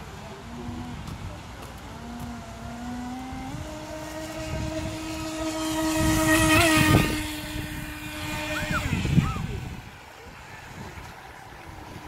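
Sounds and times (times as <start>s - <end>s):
water rushing: 0.0s - 12.0s
electric motor whine: 0.4s - 10.0s.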